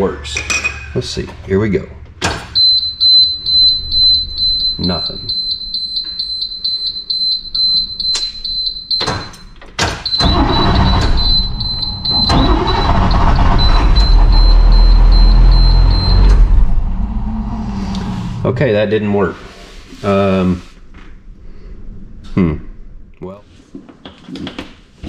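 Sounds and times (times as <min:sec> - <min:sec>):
diesel engine cranking: 0:10.1 - 0:18.9.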